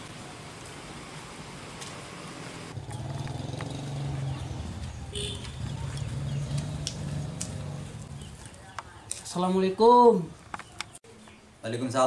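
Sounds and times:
outdoor hiss: 0.0 - 2.8
engine running at low pitch: 0.0 - 8.6.

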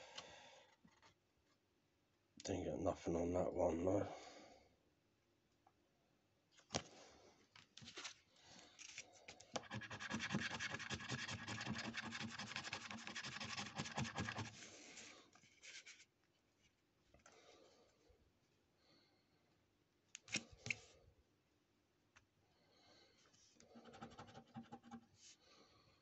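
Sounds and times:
scratchcard being scratched: 9.6 - 14.5.

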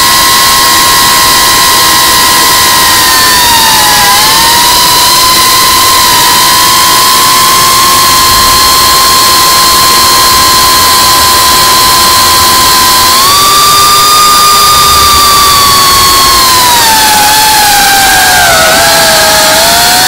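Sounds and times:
drone motors whining: 0.0 - 20.0
loud rushing noise: 10.7 - 20.0.

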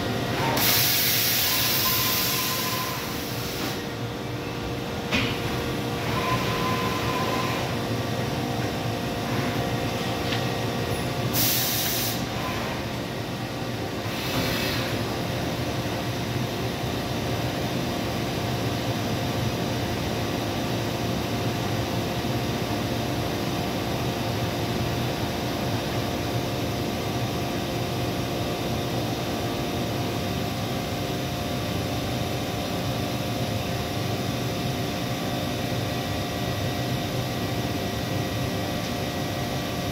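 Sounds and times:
air hisses: 0.6 - 3.8, 11.3 - 12.3.

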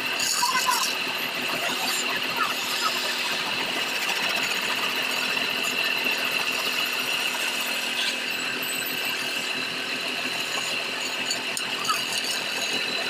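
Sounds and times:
chisel scraping spinning wood: 0.0 - 13.0
constant high tone: 0.0 - 13.0.

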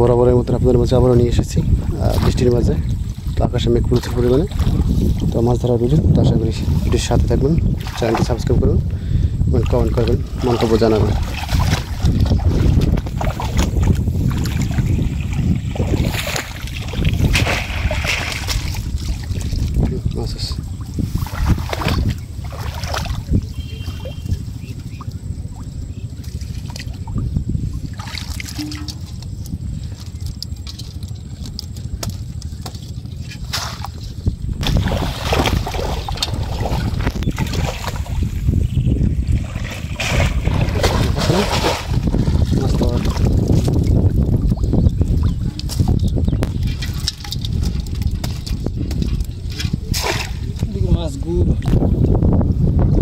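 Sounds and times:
wind rumble on microphone: 0.0 - 53.0
water splashing and pouring: 1.7 - 5.4, 6.5 - 8.6, 9.6 - 24.3, 26.2 - 29.5, 33.4 - 50.6.

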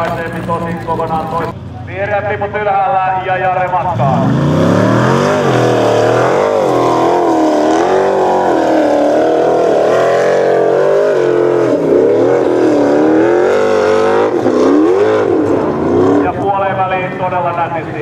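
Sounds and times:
buggy engine revving hard: 3.7 - 16.5.

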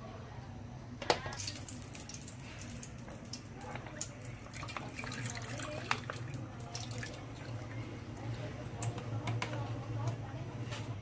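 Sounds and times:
milk pouring into a frying pan: 1.4 - 8.9.

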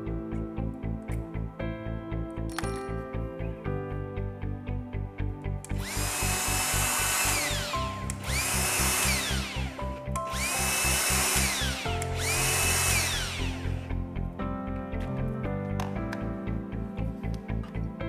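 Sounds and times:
background music with steady beat: 0.0 - 18.0
die grinder whining: 5.7 - 14.0.

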